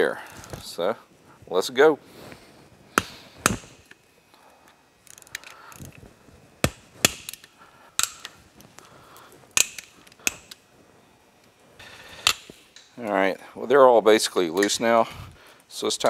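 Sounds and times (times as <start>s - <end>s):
bolts snapping free: 6.6s - 8.4s, 9.5s - 10.6s, 12.1s - 13.0s.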